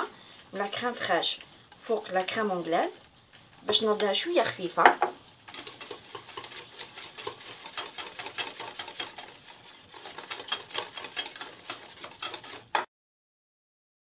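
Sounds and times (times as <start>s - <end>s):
whisk clicking against saucepan: 5.5s - 12.9s.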